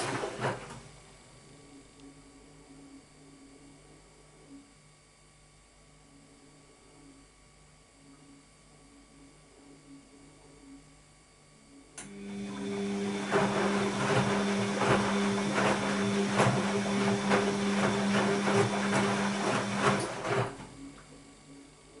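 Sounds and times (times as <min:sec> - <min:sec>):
washing machine motor humming: 0:00.0 - 0:00.9, 0:12.0 - 0:21.0
wet laundry tumbling and sloshing: 0:13.2 - 0:20.6.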